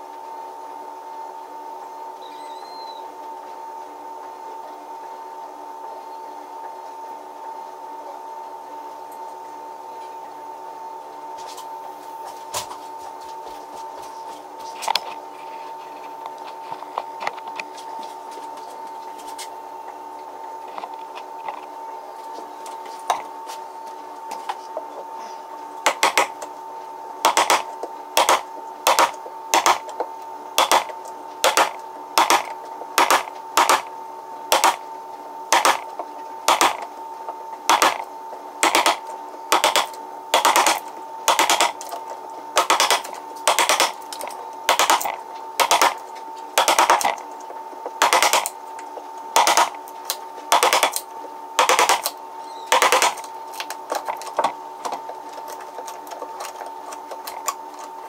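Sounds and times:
chisel chopping wood: 25.9 - 26.3, 27.3 - 29.8, 30.6 - 33.9, 34.5 - 34.8, 35.6 - 35.8, 37.7 - 38.0, 39.6 - 41.8, 42.6 - 44.0.

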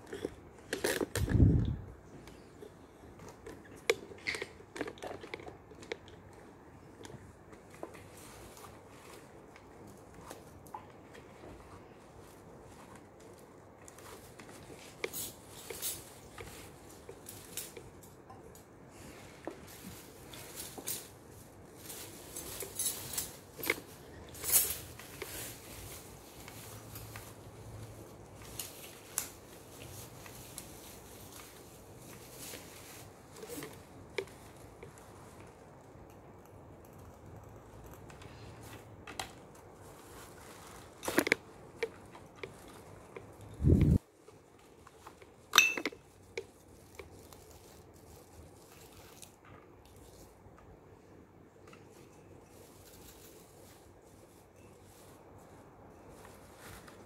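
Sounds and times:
shredded paper rustling: 39.5 - 41.8
dishes clinking together: 45.6 - 45.9.

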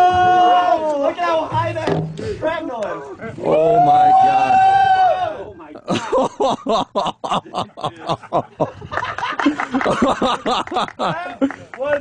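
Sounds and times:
men laughing excitedly: 5.8 - 11.7.

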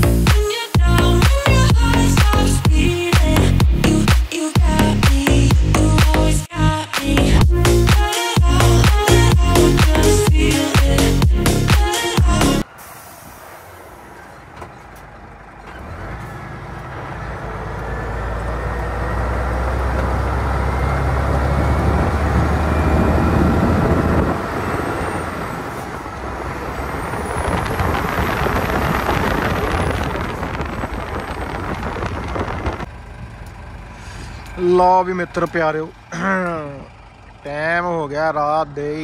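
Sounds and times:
truck diesel engine running: 7.1 - 39.0
broad hissing rush: 11.9 - 13.9.

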